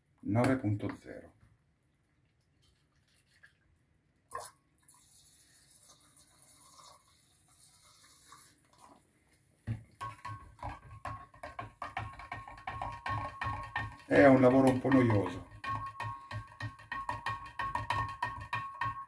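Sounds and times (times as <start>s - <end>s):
utensil knocking against glass jar: 10.0s - 19.0s.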